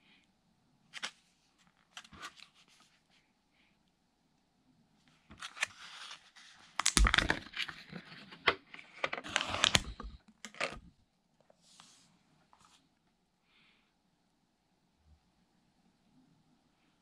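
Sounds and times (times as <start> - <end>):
foil lid crinkling and tearing: 5.4 - 8.3, 9.0 - 10.8.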